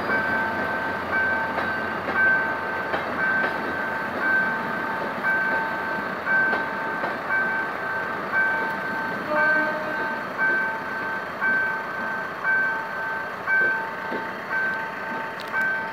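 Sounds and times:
level crossing alarm beeping: 0:00.0 - 0:15.9
train coaches rumbling on rails: 0:00.0 - 0:15.9.

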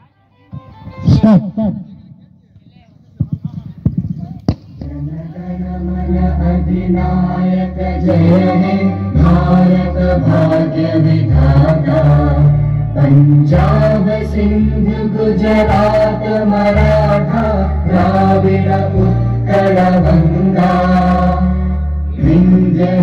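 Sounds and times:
low accompaniment: 0:03.2 - 0:23.0
voices singing an anthem: 0:04.7 - 0:23.0.

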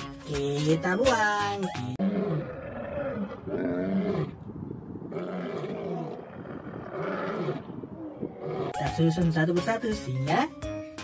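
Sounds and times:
lions roaring: 0:02.0 - 0:04.4, 0:05.0 - 0:08.8.

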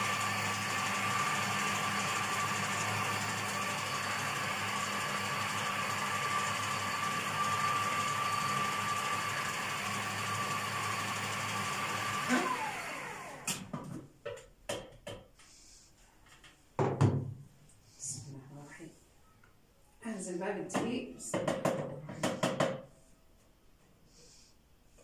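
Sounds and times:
food processor motor whining: 0:00.0 - 0:13.8.

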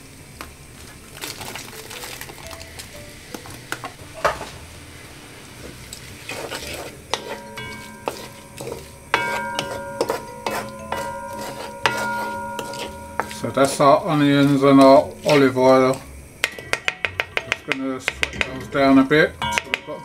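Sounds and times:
onions sizzling in pot: 0:00.0 - 0:20.0
background music with held notes: 0:01.5 - 0:05.0
wooden spoon scraping pot: 0:06.2 - 0:16.0.

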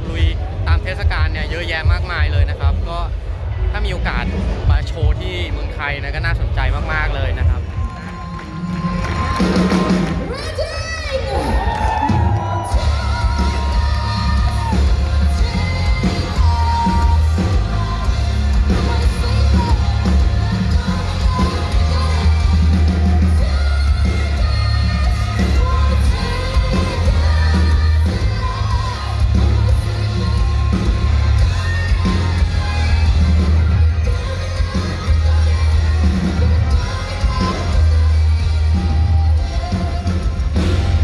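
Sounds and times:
loud heavy bass: 0:00.0 - 0:41.0
live band playing: 0:05.6 - 0:41.0
person singing: 0:12.5 - 0:41.0.

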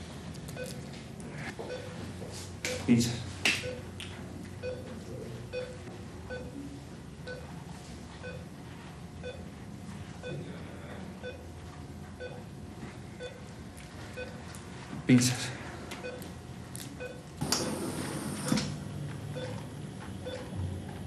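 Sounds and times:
heart monitor beeping: 0:00.6 - 0:00.8, 0:01.6 - 0:02.1, 0:03.6 - 0:03.9, 0:04.6 - 0:04.9, 0:05.5 - 0:06.6, 0:07.2 - 0:07.6, 0:08.2 - 0:08.5, 0:09.2 - 0:09.6, 0:10.2 - 0:10.5, 0:11.2 - 0:12.6, 0:13.2 - 0:13.5, 0:14.1 - 0:14.6, 0:16.0 - 0:16.3, 0:17.0 - 0:17.8, 0:19.3 - 0:20.6.

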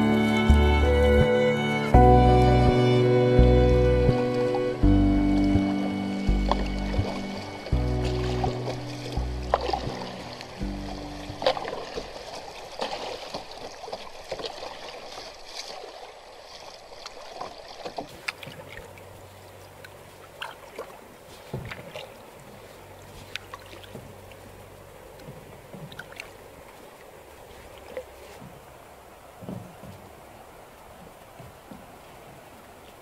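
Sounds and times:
water splashing around kayak: 0:00.0 - 0:33.0
water drips: 0:02.6 - 0:28.2.

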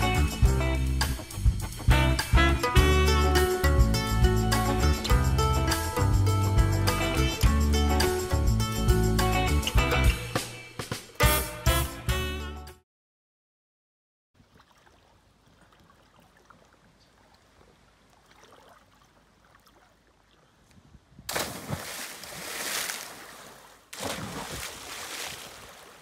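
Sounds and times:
person splashing into water: 0:18.2 - 0:20.0, 0:21.3 - 0:26.0.

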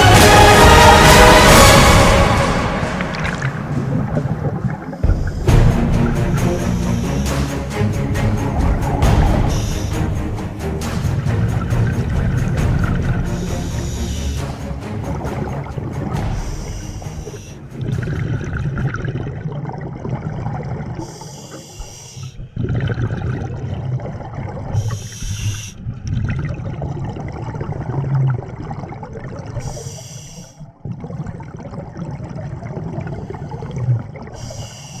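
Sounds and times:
exhaled air bubbling underwater: 0:01.4 - 0:10.2, 0:10.9 - 0:35.0
regulator inhale hiss: 0:05.0 - 0:05.5, 0:09.5 - 0:10.0, 0:13.3 - 0:14.6, 0:16.3 - 0:17.6, 0:21.0 - 0:22.4, 0:24.8 - 0:25.8, 0:29.6 - 0:30.6, 0:34.4 - 0:35.0.

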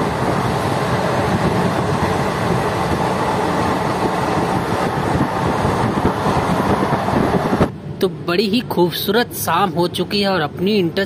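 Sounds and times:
rushing noise: 0:00.0 - 0:08.0
train wheels rumbling on track: 0:00.0 - 0:08.0.

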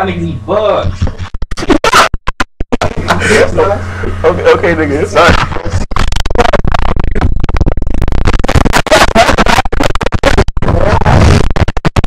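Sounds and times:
rubbing and knocking on microphone: 0:00.9 - 0:03.2, 0:05.2 - 0:12.0
indistinct voices: 0:02.8 - 0:08.2.

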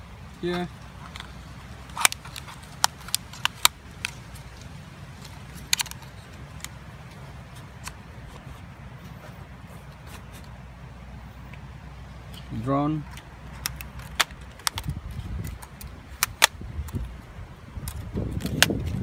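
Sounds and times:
steady low rumble: 0:00.0 - 0:19.0
plastic controller clicks: 0:05.6 - 0:06.8, 0:13.1 - 0:17.1.

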